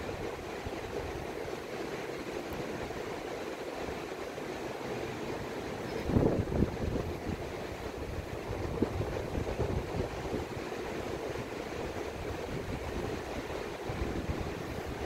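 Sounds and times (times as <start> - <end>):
ocean surf: 0.0 - 15.0
wind buffeting microphone: 5.9 - 15.0.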